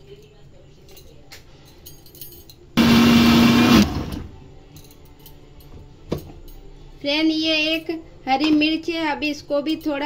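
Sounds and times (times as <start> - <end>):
mixer grinder motor: 2.8 - 4.4.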